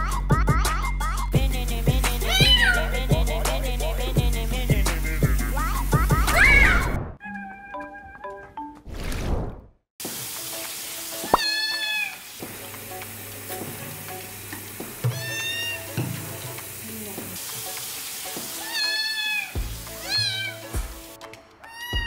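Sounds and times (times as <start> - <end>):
running water hiss: 1.4 - 6.4, 10.0 - 21.2
kitten meowing: 2.3 - 2.8, 11.3 - 12.2, 15.1 - 15.8, 18.6 - 20.6, 21.7 - 22.0.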